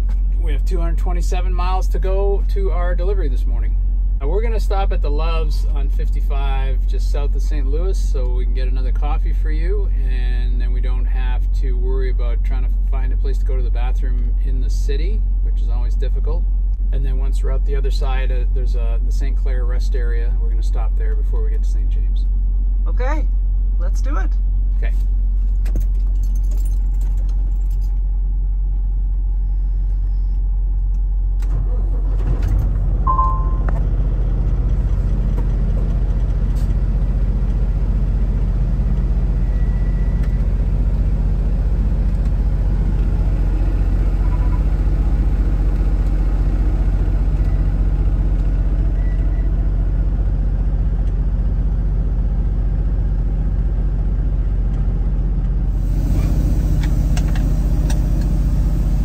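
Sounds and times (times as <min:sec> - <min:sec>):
truck diesel engine drone: 0:00.0 - 0:25.4, 0:27.5 - 0:59.0
brief high tones: 0:33.1 - 0:33.8.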